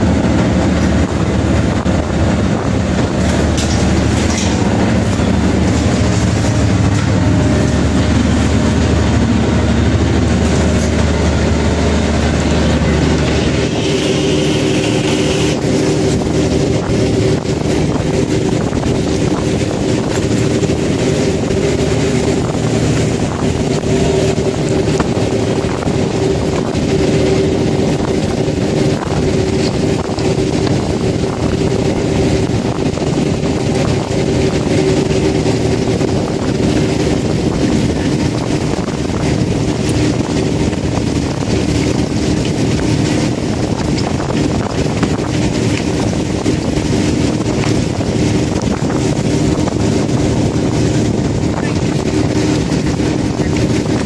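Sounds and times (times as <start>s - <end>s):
boat engine running: 0.0s - 54.0s.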